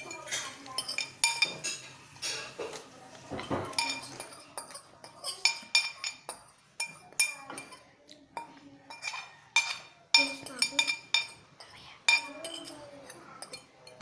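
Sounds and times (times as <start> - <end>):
plate and glass clinking: 0.0 - 7.8.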